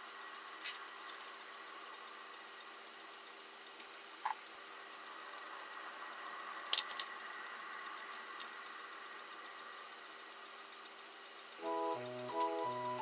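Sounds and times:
faint steady hum: 11.5 - 13.0.

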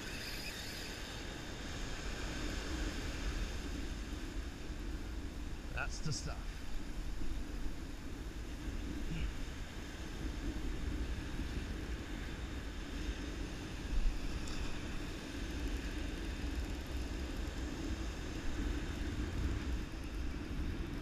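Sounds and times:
wind rumble on microphone: 0.0 - 21.0.

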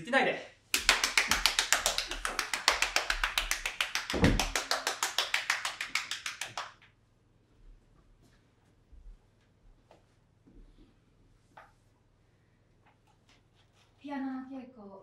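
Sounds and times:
person clapping hands: 0.7 - 6.9.

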